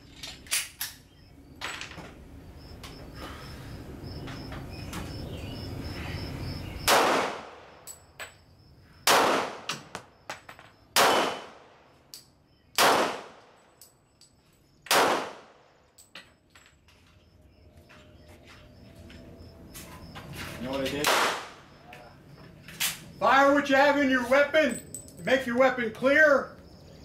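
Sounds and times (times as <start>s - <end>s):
pistol shots with ringing echo: 6.8s - 8.0s, 9.0s - 10.3s, 10.9s - 11.9s, 12.8s - 13.8s, 14.9s - 15.8s, 21.0s - 21.7s.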